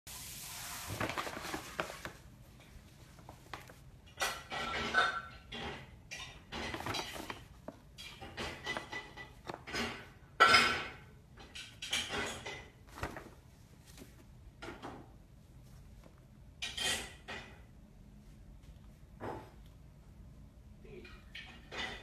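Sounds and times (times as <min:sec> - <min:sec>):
paper bag rustling and crinkling: 0:00.2 - 0:02.3, 0:06.6 - 0:07.8, 0:12.8 - 0:14.2.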